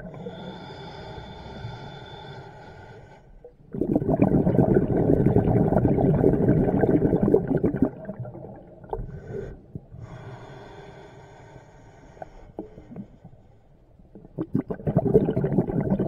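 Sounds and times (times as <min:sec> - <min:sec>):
hissing inhale through regulator: 0:00.0 - 0:03.5, 0:08.9 - 0:13.8
exhaled bubbles crackling: 0:03.7 - 0:09.9, 0:14.1 - 0:16.0.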